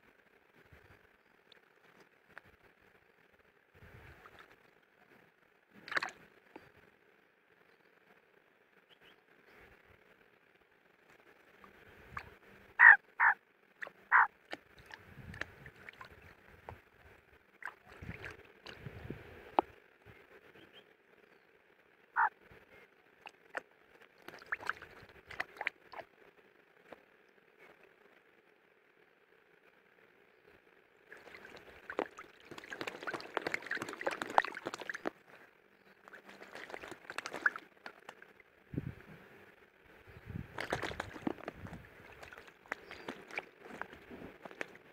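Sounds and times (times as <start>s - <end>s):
bird splashing in puddle: 5.8s - 6.2s, 17.6s - 18.8s, 23.2s - 26.1s, 31.1s - 35.4s, 36.0s - 38.4s, 40.5s - 44.9s.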